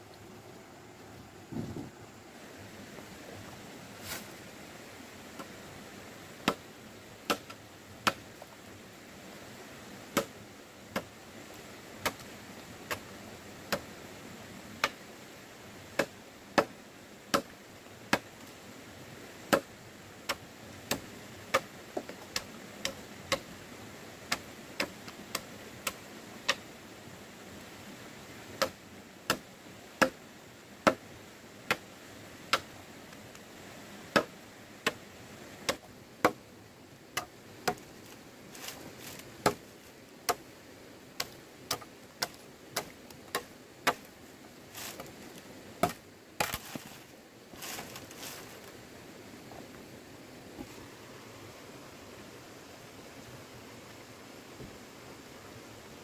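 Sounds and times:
machete chopping wood: 6.4 - 6.6, 7.3 - 8.2, 17.3 - 17.5, 28.6 - 29.4, 34.1 - 34.3, 35.7 - 36.4, 39.4 - 39.6, 41.2 - 44.1, 45.8 - 46.9.

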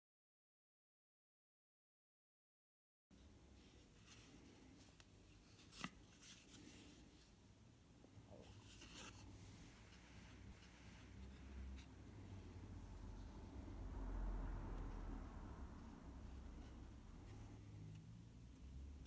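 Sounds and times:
paper pages rustling: 8.3 - 11.9.

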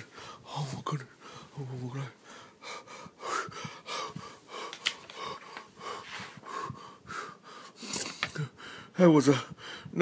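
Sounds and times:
man breathing hard: 0.0 - 0.5, 1.1 - 1.6, 2.2 - 10.0.

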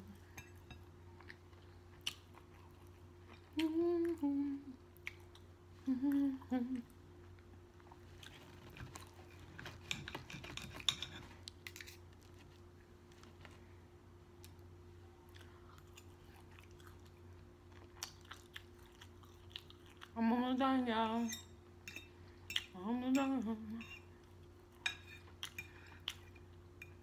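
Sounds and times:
closed-mouth hum: 0.0 - 9.4
cutlery scraping a plate: 9.6 - 12.0.

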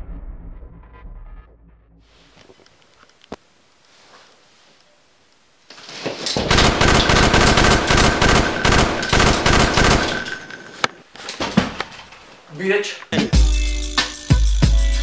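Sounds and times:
automatic gunfire burst: 6.5 - 11.0.

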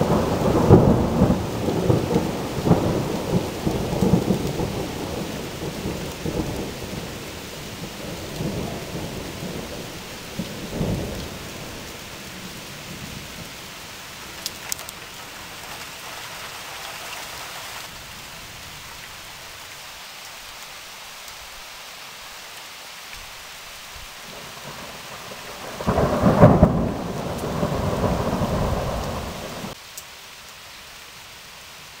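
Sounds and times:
thunder rumbling: 0.0 - 14.8, 24.3 - 29.8
steady rain: 0.0 - 32.0
loud thunder clap: 25.6 - 29.8.

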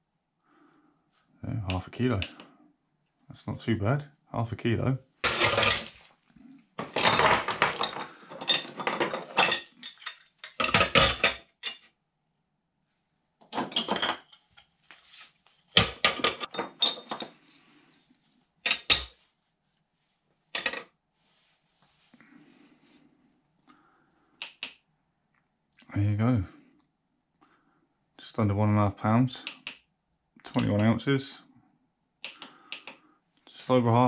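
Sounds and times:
scrap metal clattering: 5.2 - 6.0.

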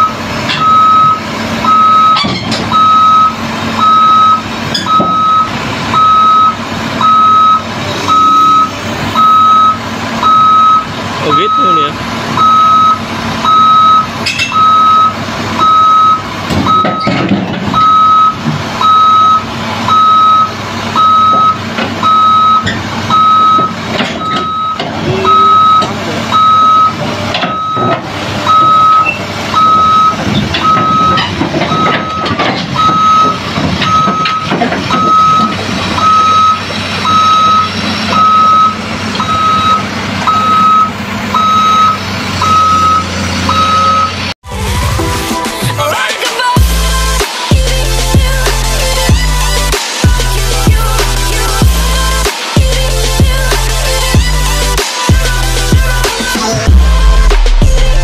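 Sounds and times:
excavator travel alarm beeping: 0.0 - 44.4
excavator engine running: 0.0 - 58.0.

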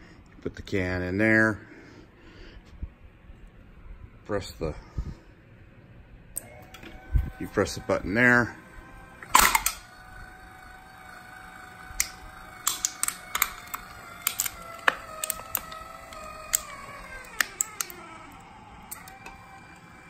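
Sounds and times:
actuator motor whining: 6.3 - 20.0
can crumpling with crackles: 12.0 - 18.0.

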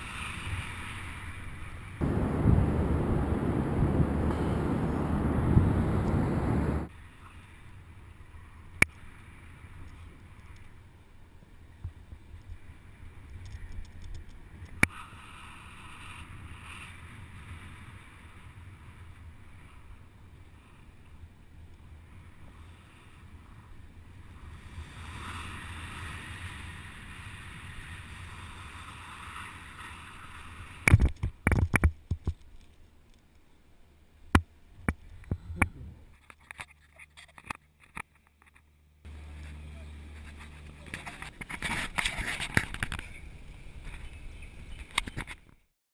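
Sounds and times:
wind noise on microphone: 2.0 - 6.9.

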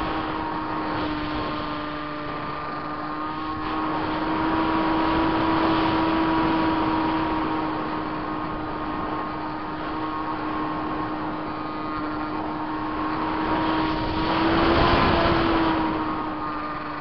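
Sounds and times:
electric motor and propeller whine: 0.0 - 17.0
rushing air: 12.3 - 16.8.

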